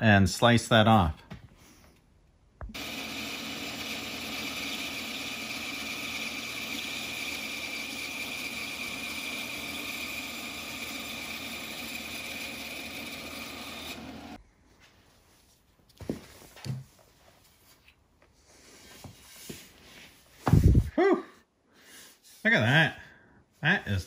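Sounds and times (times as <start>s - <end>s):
bandsaw cutting wood: 2.7s - 14.4s.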